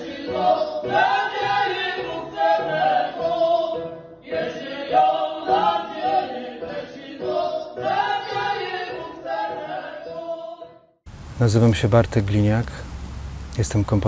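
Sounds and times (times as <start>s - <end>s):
group singing unaccompanied: 0.0s - 10.9s.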